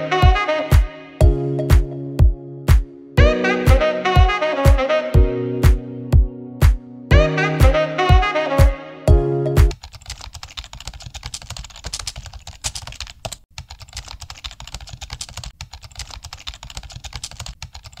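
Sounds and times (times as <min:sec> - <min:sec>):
keyboard typing: 0:09.6 - 0:18.0.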